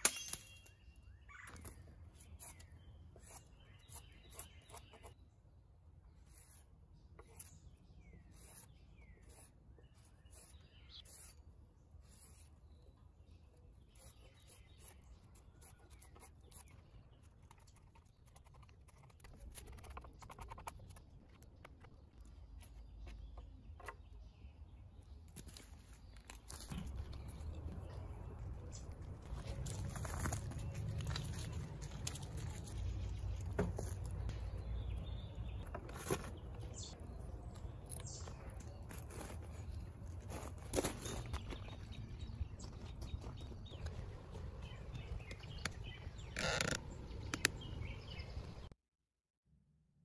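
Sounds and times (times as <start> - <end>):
bird chirp: 0.0 - 40.0, 40.7 - 48.8
low outdoor rumble: 26.5 - 48.7.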